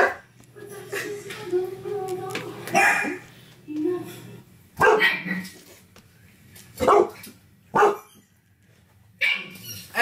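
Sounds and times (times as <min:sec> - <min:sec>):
dog barking: 0:00.0 - 0:00.2, 0:02.7 - 0:03.2, 0:04.8 - 0:05.5, 0:06.8 - 0:08.1.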